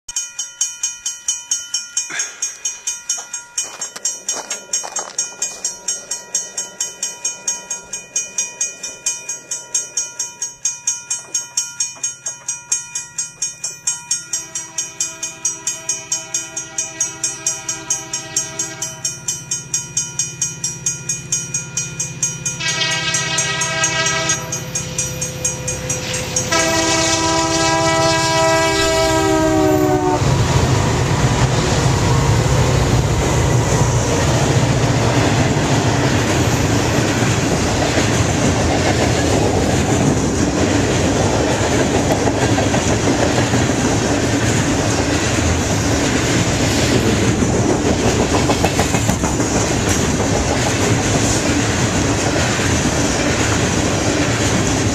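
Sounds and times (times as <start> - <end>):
crossing bell dinging: 0.1 - 50.2
diesel locomotive engines rumbling: 1.3 - 54.9
locomotive air horn: 14.5 - 19.1, 22.6 - 24.6, 26.1 - 30.4.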